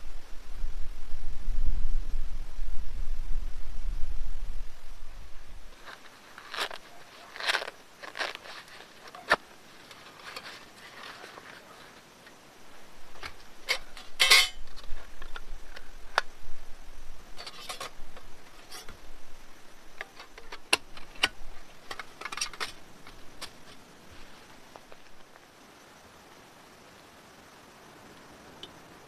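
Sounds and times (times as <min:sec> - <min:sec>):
fabric pouch rustling: 0:05.7 - 0:12.1
metal panels clinking: 0:13.2 - 0:15.0, 0:20.0 - 0:23.8.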